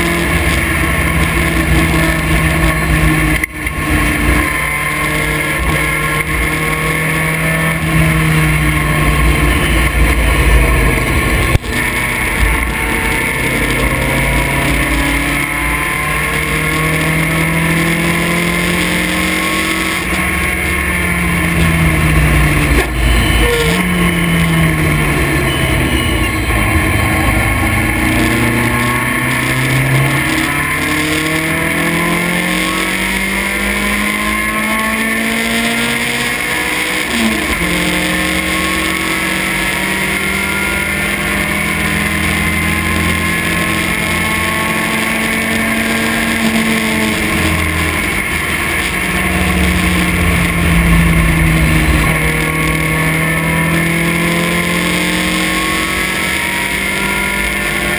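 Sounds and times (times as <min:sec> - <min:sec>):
race car engine revving: 0:00.0 - 0:57.9.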